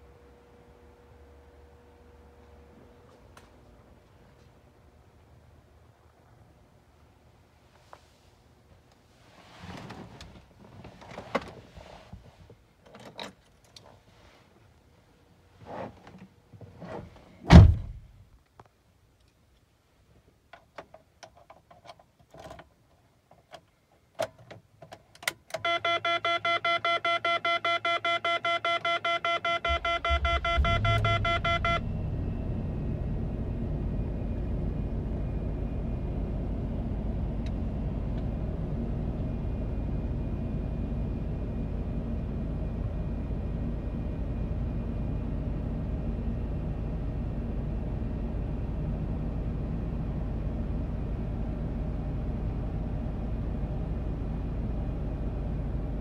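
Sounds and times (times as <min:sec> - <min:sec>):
dashboard warning chime: 0:25.6 - 0:32.4
car engine starting and idling: 0:28.8 - 0:56.0.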